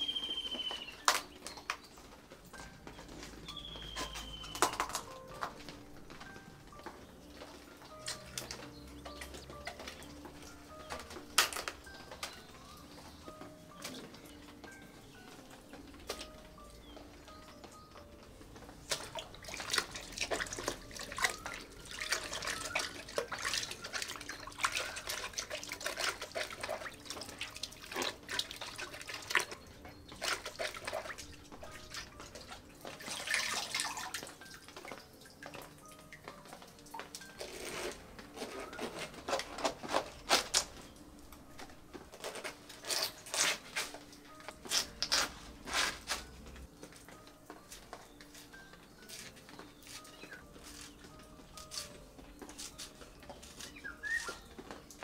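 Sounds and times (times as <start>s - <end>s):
water splashing and dripping: 18.6s - 37.7s.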